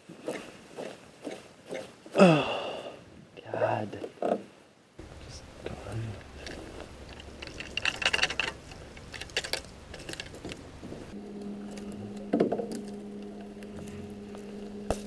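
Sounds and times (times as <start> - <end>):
rattling clicks: 6.2 - 10.6
electric motor humming: 11.2 - 15.0.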